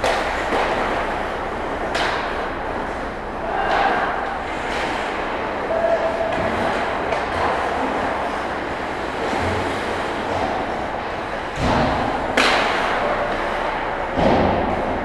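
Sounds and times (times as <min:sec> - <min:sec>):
sharp crack of stick or puck: 0:00.0 - 0:01.0, 0:01.9 - 0:02.4, 0:11.6 - 0:13.2
skates scraping on ice: 0:00.0 - 0:13.7.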